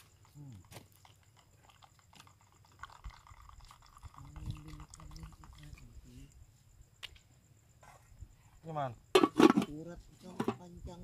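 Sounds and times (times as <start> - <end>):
stirring drink in plastic cup: 0.8 - 5.8.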